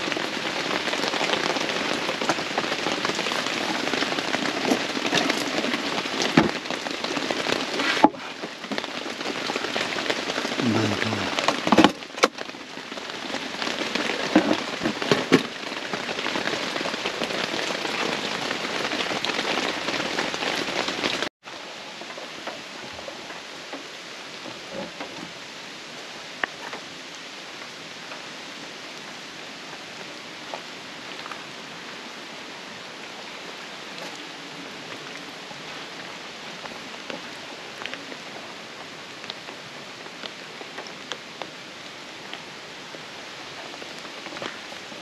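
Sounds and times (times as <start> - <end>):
heavy rain pelting down: 0.0 - 45.0.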